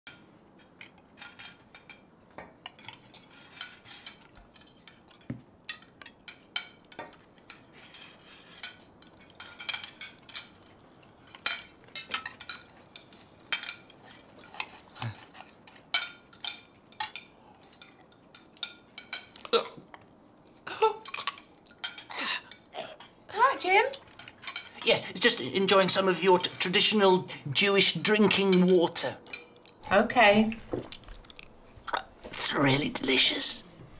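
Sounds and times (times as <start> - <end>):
cutlery clinking on plates: 0.1 - 20.0, 20.9 - 22.7, 24.0 - 27.0, 27.8 - 29.8.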